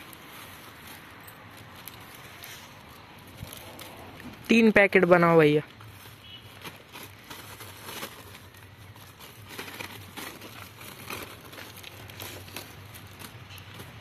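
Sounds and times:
plastic packets crinkling: 0.0s - 14.0s
popcorn rustling: 0.0s - 14.0s.

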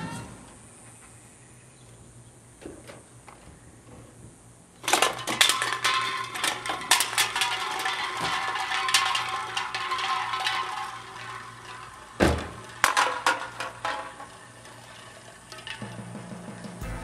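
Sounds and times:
hip-hop music: 16.8s - 17.0s.

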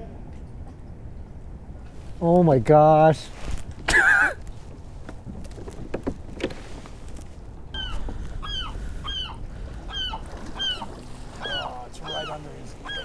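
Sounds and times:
bird calling: 7.7s - 13.0s.

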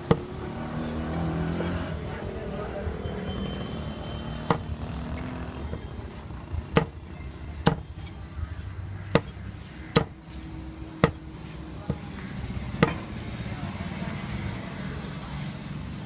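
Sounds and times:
cleaver chopping on wooden block: 0.0s - 0.3s, 4.4s - 5.9s, 6.6s - 7.0s, 7.6s - 7.9s, 9.1s - 10.2s, 11.8s - 12.1s.

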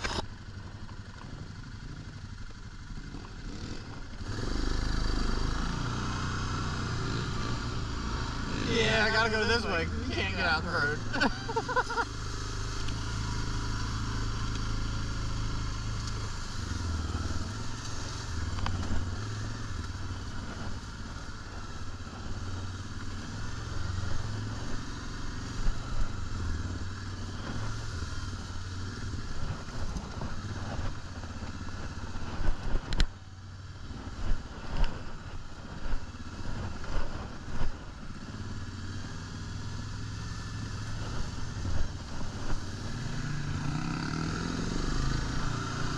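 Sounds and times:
atv engine running: 0.0s - 45.9s.

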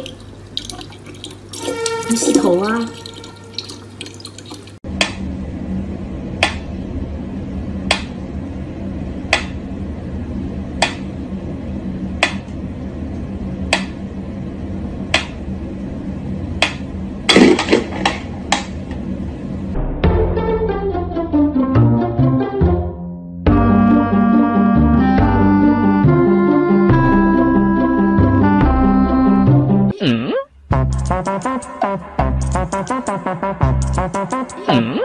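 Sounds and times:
tap running water: 0.0s - 4.8s
low hum: 4.8s - 21.5s.

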